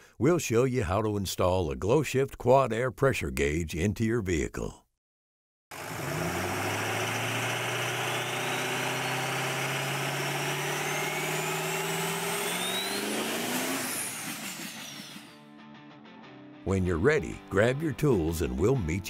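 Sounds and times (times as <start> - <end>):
car engine revving: 5.7 - 15.3
high rising whine: 5.8 - 15.4.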